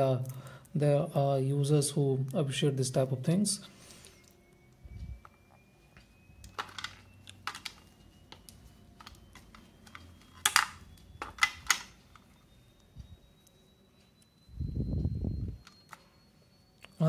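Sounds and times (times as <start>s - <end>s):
earphones handled in plastic case: 6.5s - 12.3s
plastic clatters: 6.5s - 12.3s.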